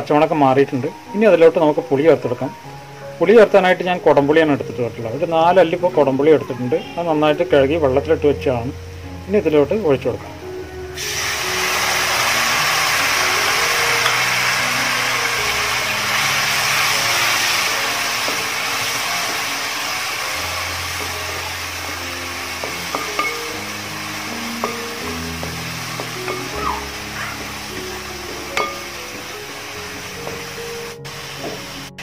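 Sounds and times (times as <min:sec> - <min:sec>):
masala sizzling in pan: 0:10.9 - 0:32.0
wooden spatula tapping pan: 0:22.6 - 0:23.6, 0:24.6 - 0:26.6.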